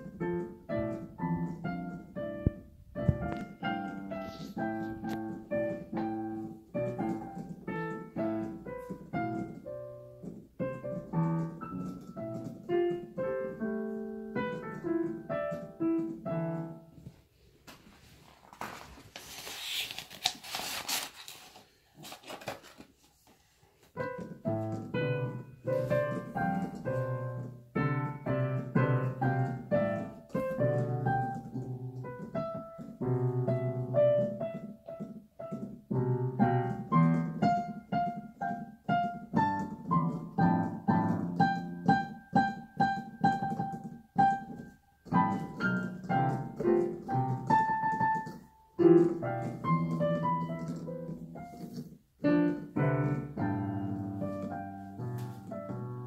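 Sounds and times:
digital piano playing: 0:00.0 - 0:17.0, 0:23.9 - 0:56.0
short rustling noise: 0:00.1 - 0:35.2.

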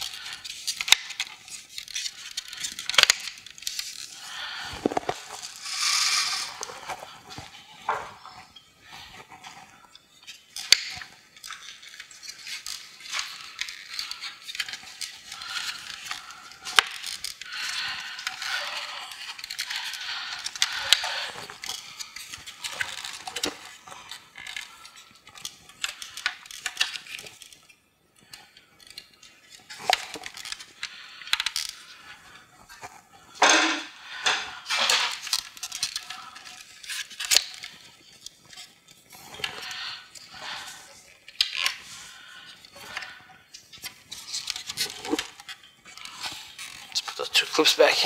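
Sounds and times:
plastic scraping and rubbing: 0:00.0 - 0:48.0.

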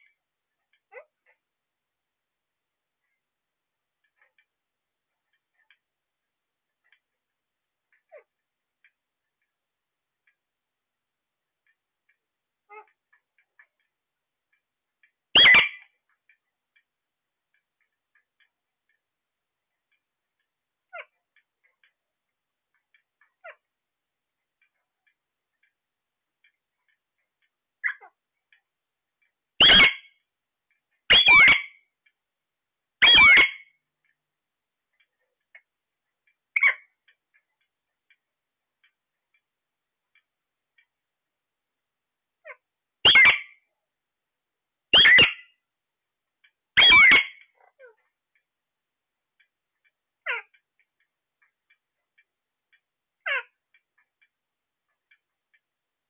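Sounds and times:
faint chirps: 0:11.5 - 0:16.9
parakeet squawk: 0:15.4 - 0:15.9, 0:27.8 - 0:28.2, 0:29.6 - 0:30.1, 0:31.1 - 0:31.8, 0:33.0 - 0:33.7, 0:36.6 - 0:36.8, 0:42.4 - 0:43.6, 0:44.9 - 0:45.5, 0:46.8 - 0:48.0, 0:50.2 - 0:50.5, 0:53.2 - 0:53.5.

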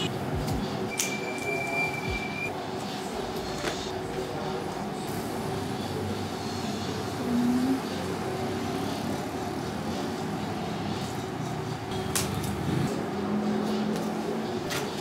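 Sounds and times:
short tone: 0:00.9 - 0:02.5.

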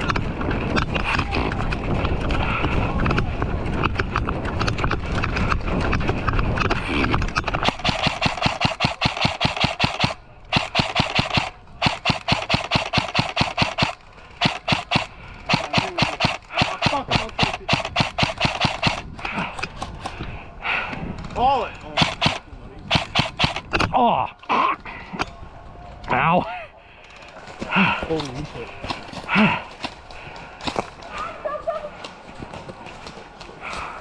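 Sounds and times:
airsoft rifle shots: 0:07.5 - 0:19.1, 0:21.8 - 0:23.8.

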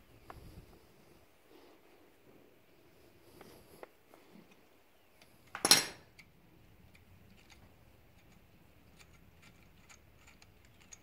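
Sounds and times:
wrench clanking on metal: 0:05.6 - 0:06.0.

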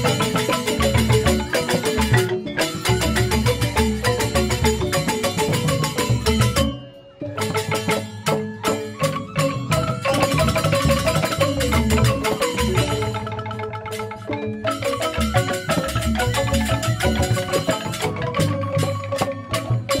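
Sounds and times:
bamboo xylophones playing: 0:00.0 - 0:20.0.

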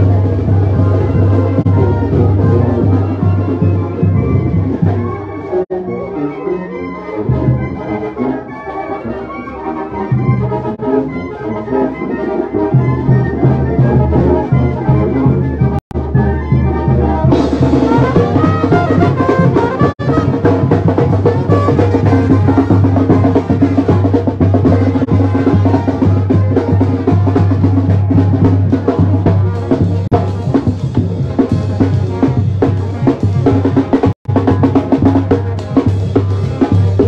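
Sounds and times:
brass band playing a march: 0:00.0 - 0:37.0
trumpets playing tune: 0:00.0 - 0:37.0
bass drum and snare beat: 0:13.5 - 0:37.0.

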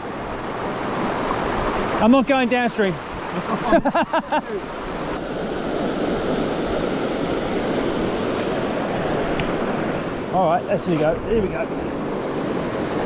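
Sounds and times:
river rushing over boulders: 0:00.0 - 0:05.3.

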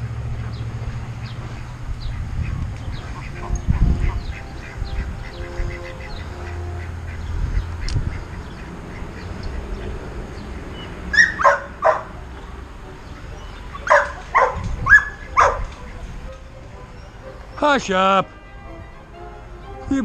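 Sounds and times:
ducks quacking: 0:00.2 - 0:20.0
dog barking: 0:11.1 - 0:12.1, 0:13.8 - 0:15.8.

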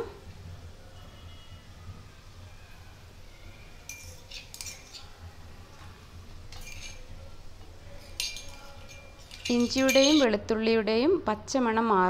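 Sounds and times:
steel kitchenware clinking: 0:03.8 - 0:10.4.

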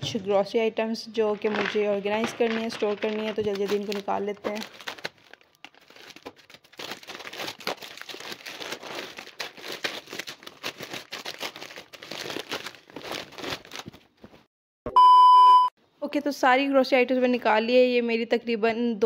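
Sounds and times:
plastic bags crinkling: 0:01.2 - 0:14.2
cloth bags rustling: 0:01.4 - 0:14.5.

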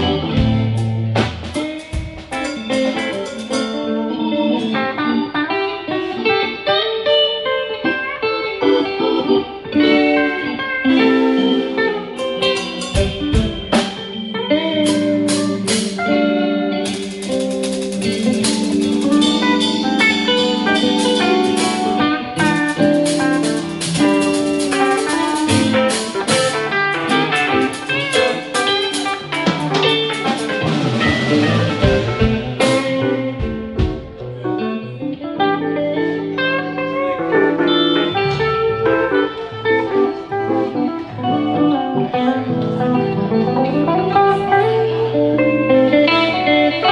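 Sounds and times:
live rock band playing blues: 0:00.0 - 0:46.9.

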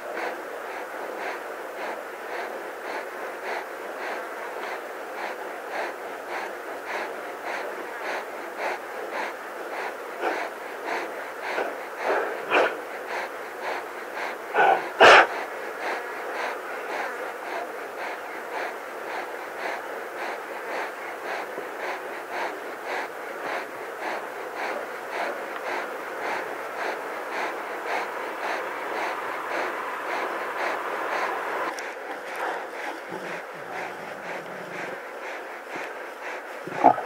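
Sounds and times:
lion panting: 0:00.0 - 0:37.0
lion double cough: 0:14.6 - 0:15.3, 0:36.6 - 0:37.0.

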